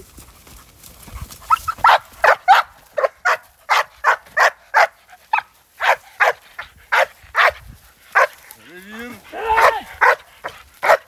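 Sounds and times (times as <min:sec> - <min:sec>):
dog barking rapidly: 0:01.5 - 0:07.6, 0:08.2 - 0:08.4, 0:09.3 - 0:11.0.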